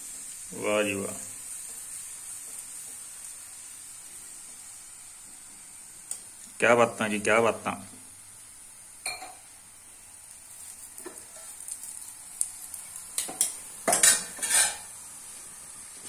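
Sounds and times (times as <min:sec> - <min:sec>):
flatbread sizzling faintly: 0:00.0 - 0:16.0
steel utensils clinking: 0:13.2 - 0:14.8
steel spoon scraping and tapping: 0:13.2 - 0:14.9.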